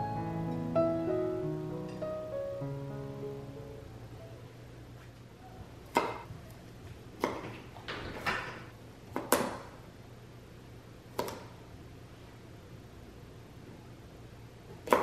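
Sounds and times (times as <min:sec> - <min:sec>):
knife slicing carrot: 0:11.1 - 0:11.6, 0:14.8 - 0:15.0.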